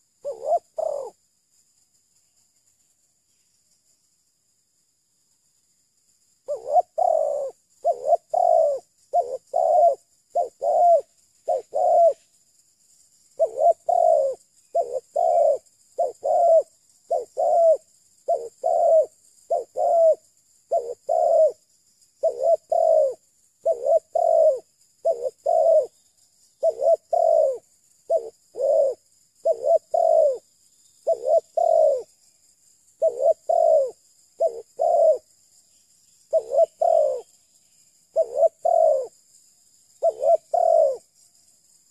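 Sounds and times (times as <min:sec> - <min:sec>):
dove cooing: 0:00.0 - 0:01.2, 0:06.4 - 0:12.2, 0:13.4 - 0:21.6, 0:22.2 - 0:26.0, 0:26.6 - 0:30.4, 0:31.0 - 0:32.1, 0:33.0 - 0:35.3, 0:36.3 - 0:37.4, 0:38.1 - 0:39.2, 0:40.0 - 0:41.1.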